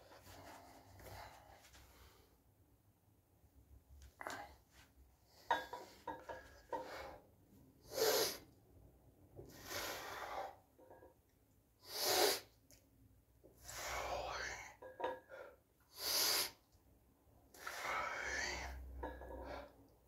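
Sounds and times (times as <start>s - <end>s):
dumbbells clicking and knocking: 5.4s - 7.0s.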